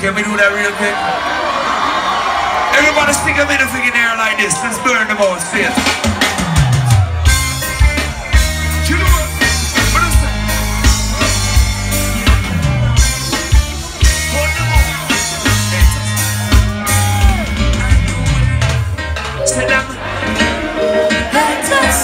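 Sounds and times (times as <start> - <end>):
keyboards: 2.8 - 22.0
drum kit: 5.7 - 22.0
bass line: 6.6 - 22.0.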